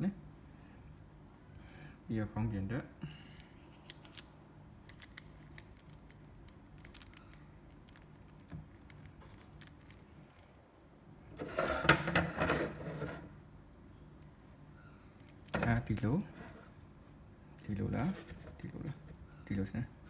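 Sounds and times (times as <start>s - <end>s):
plastic figure clicking and rustling: 3.4s - 10.5s.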